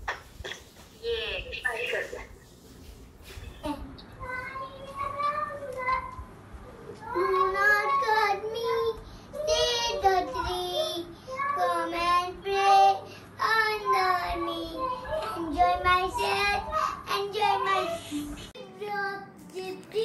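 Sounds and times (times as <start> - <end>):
child singing: 4.2 - 6.3, 6.9 - 20.0.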